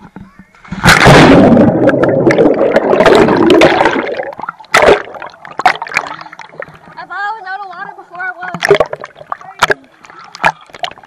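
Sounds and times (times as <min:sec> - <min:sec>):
water churning underwater: 0:00.0 - 0:07.2, 0:08.4 - 0:11.0
water splash: 0:00.6 - 0:07.0, 0:08.5 - 0:11.0.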